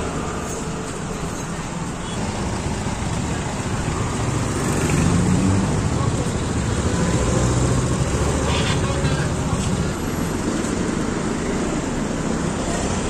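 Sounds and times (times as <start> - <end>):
car engines running: 0.0 - 13.0
people's voices: 1.3 - 10.2.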